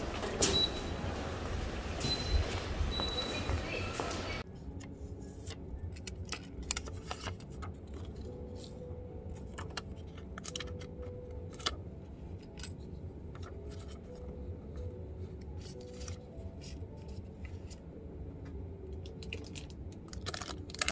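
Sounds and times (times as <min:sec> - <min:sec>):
wrapper clicking and crinkling: 0:05.4 - 0:08.5, 0:09.4 - 0:12.8, 0:19.0 - 0:20.9.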